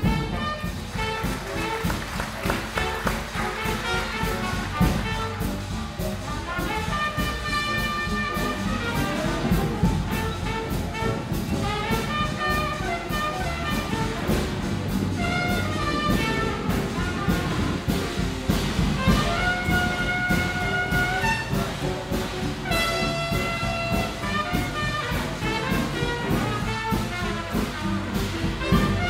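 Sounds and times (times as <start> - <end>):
brass instrumental music with beat: 0.0 - 29.0.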